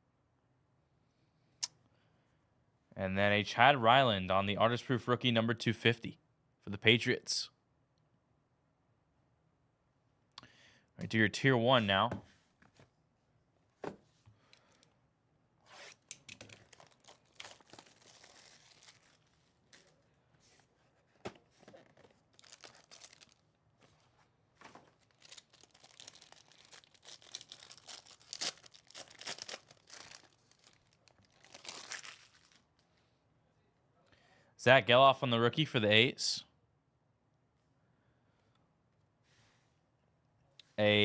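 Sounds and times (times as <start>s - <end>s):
plastic wrap tearing and crinkling: 15.7s - 20.0s, 21.8s - 23.6s, 24.7s - 32.8s.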